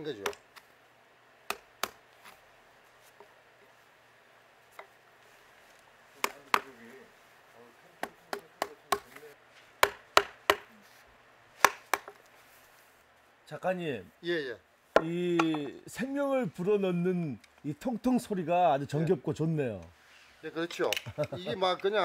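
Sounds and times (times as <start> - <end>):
wooden mallet striking chisel: 0.2 - 0.4, 6.2 - 6.7, 8.0 - 9.2, 9.8 - 10.7, 11.6 - 12.2, 14.9 - 15.8.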